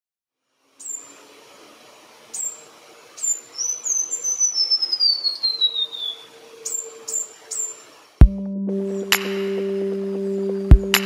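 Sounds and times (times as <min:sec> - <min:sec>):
bird whistling descending notes: 0:02.4 - 0:08.0
sharp high bird notes: 0:03.2 - 0:07.9.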